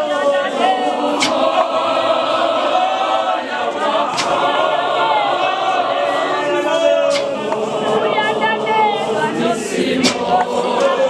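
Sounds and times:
choir singing a hymn: 0.0s - 11.0s
sharp knocks: 1.2s - 1.7s, 10.0s - 10.5s.

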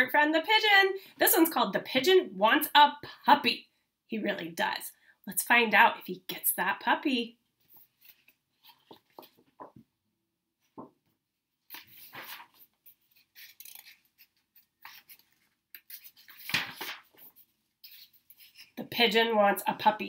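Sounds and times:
book pages turning: 7.6s - 9.9s, 10.6s - 18.8s.

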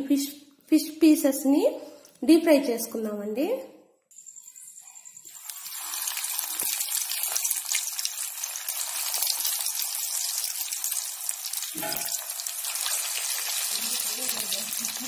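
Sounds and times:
fish deep-frying in oil: 5.3s - 15.0s.

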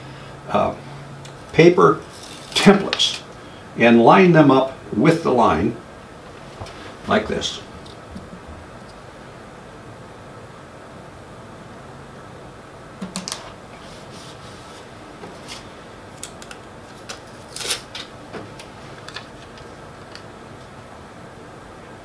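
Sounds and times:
faint room hiss: 0.0s - 22.0s
paper rustling: 2.0s - 3.2s.

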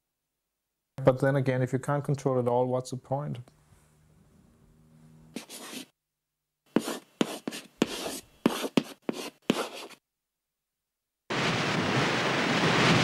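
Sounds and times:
chalk scratching on blackboard: 5.3s - 5.9s, 6.7s - 10.0s.

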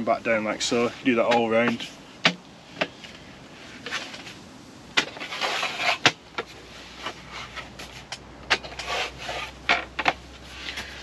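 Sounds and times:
short scrape: 5.0s - 9.7s.

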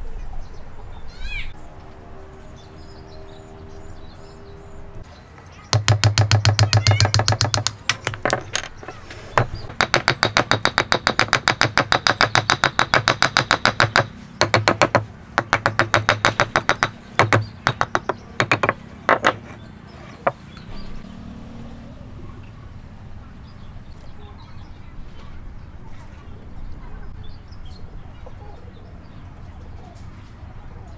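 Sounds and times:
hammer tapping wooden peg: 5.7s - 19.6s.

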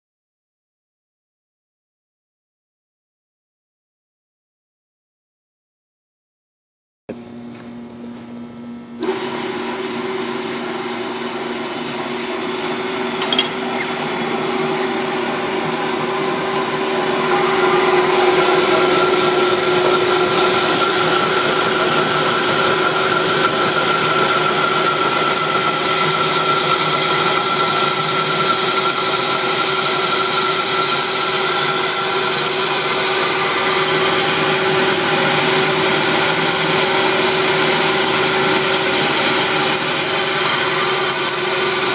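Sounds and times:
ball mill humming and hissing: 7.1s - 41.9s.

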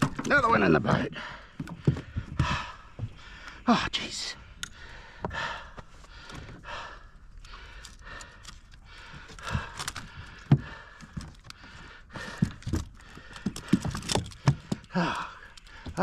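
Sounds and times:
clicks and knocks on boat deck: 0.0s - 2.5s.

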